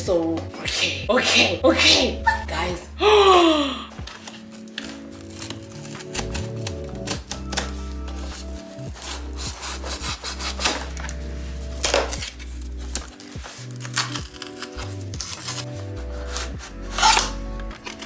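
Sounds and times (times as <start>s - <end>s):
background music: 0.0s - 18.0s
cardboard tearing: 4.0s - 18.0s
scissors cutting cardboard: 4.1s - 18.0s.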